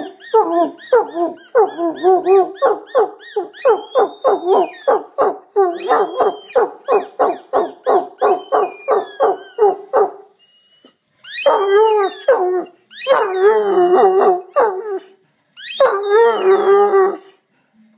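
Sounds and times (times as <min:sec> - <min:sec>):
dog hooting calls: 0:00.0 - 0:10.2
dog howling: 0:00.4 - 0:07.0, 0:11.4 - 0:15.1, 0:15.8 - 0:17.3.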